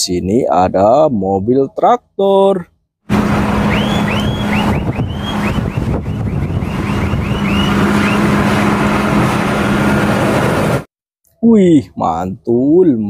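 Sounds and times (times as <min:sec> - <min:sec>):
wind on microphone: 0:03.1 - 0:10.2
road noise: 0:03.1 - 0:10.9
tractor engine drone: 0:03.1 - 0:10.9
high falling chirps: 0:03.5 - 0:08.4.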